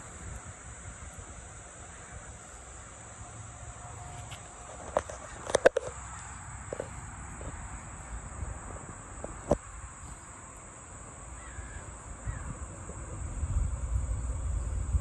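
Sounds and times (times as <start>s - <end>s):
high-pitched insect drone: 0.0s - 15.0s
low wind rumble: 6.6s - 15.0s
faint bird calls: 11.3s - 12.6s.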